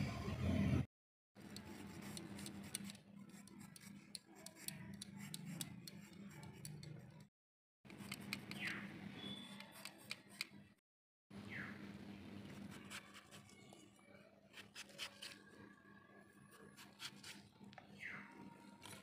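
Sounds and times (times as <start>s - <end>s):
blade scraping potato skin: 14.5s - 15.4s.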